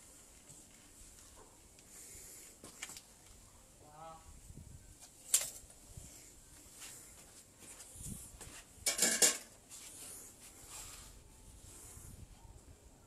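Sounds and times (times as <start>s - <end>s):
metal clanking on metal: 8.8s - 9.5s.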